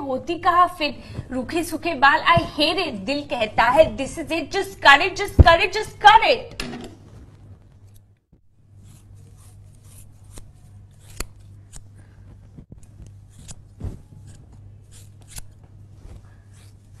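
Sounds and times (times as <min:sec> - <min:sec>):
low steady hum: 0:00.0 - 0:17.0
scissors snipping hair: 0:08.8 - 0:12.1, 0:12.8 - 0:15.7, 0:16.5 - 0:16.9.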